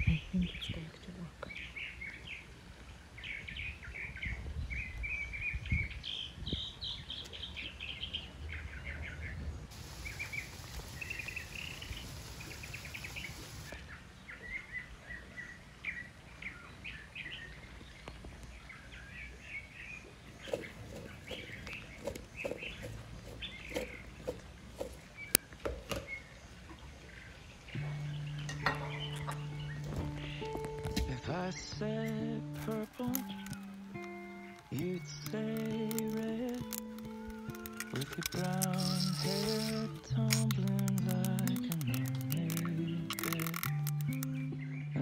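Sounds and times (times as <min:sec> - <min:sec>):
songbirds chirping: 0:00.0 - 0:45.0
sharp clicks and knocks: 0:27.8 - 0:31.2, 0:32.6 - 0:44.4.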